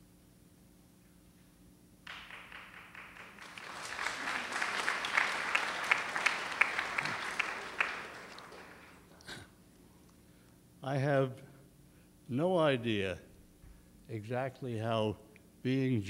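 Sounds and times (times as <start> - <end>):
audience applauding: 2.1 - 9.2.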